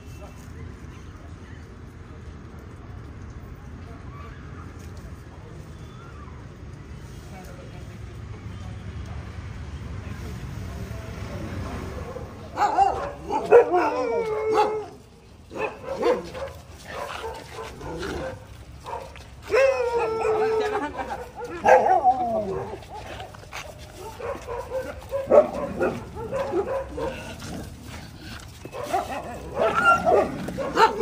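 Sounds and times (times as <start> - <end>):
dogs barking: 12.0 - 14.9, 15.5 - 27.6, 28.7 - 31.0
dogs whining and yipping: 19.4 - 23.1, 28.5 - 31.0.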